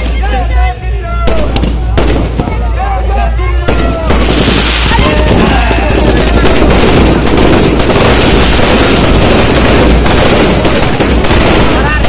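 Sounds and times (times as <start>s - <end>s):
fireworks banging and crackling: 0.0s - 0.4s, 1.2s - 2.8s, 3.6s - 12.0s.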